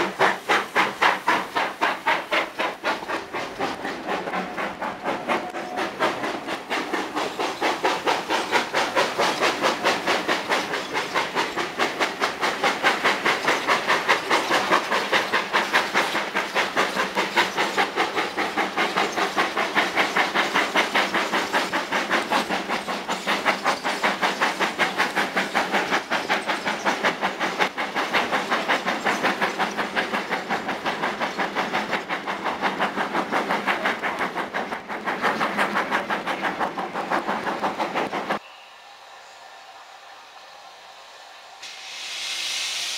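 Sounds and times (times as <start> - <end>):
steam hiss: 0.0 - 42.9
steam locomotive exhaust chuffing: 0.0 - 42.9.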